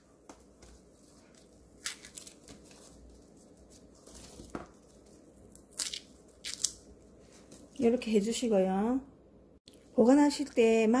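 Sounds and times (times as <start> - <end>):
garlic skins rustling: 0.6 - 8.0.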